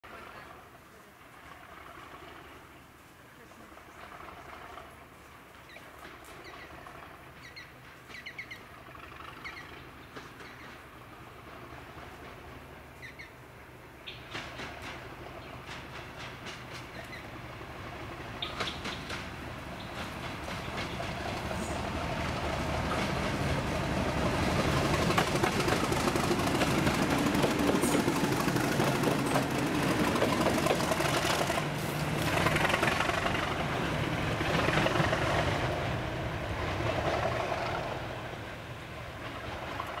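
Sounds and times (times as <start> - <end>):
diesel locomotive engine running: 0.1 - 40.0
wheels clicking over rail joints: 5.6 - 13.3, 14.1 - 38.0, 39.0 - 40.0.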